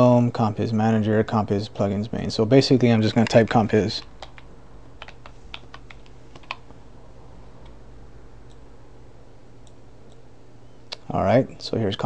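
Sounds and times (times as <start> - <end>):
steady low hum: 0.0 - 12.0
computer keyboard keystrokes: 4.0 - 6.7.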